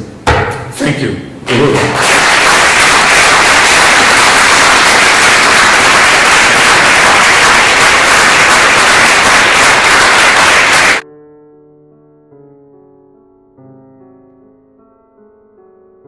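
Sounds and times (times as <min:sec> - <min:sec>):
audience applauding: 0:01.5 - 0:11.0.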